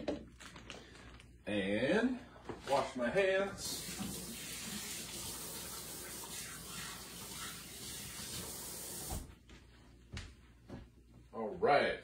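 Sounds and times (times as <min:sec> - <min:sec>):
tap water running: 0:03.6 - 0:09.3.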